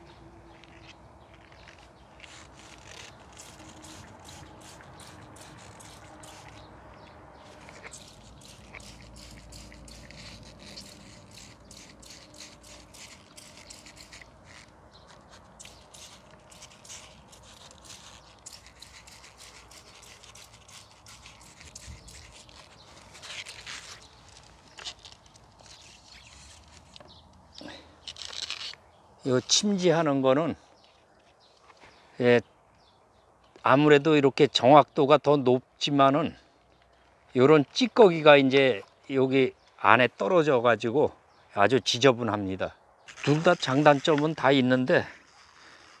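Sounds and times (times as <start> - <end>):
hands rustling among vine leaves: 0.1 - 29.9.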